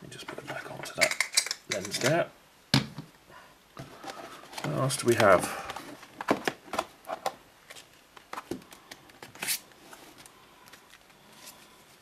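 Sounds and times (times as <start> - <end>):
paper cards rustling: 3.9 - 12.0.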